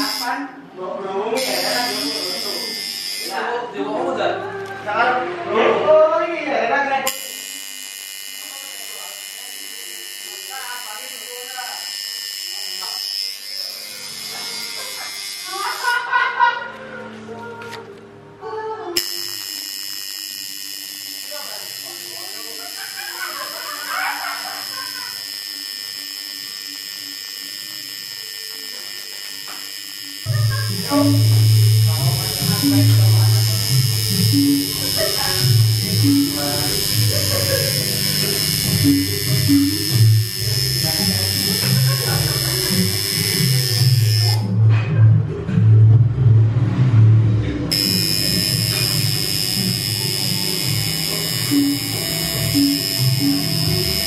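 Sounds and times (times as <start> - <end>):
tattoo machine buzzing: 0.0 - 0.6, 1.3 - 4.0, 6.9 - 16.5, 19.0 - 44.8, 47.7 - 54.0.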